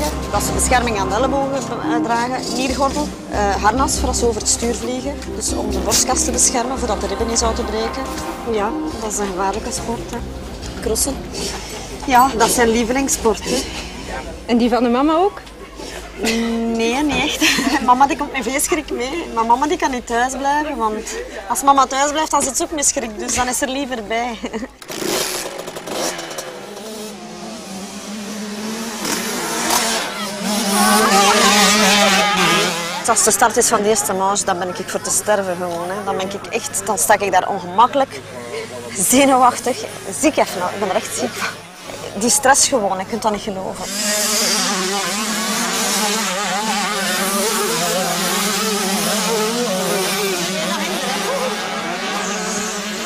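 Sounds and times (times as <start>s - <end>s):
motocross bike engines revving: 0.0s - 53.0s.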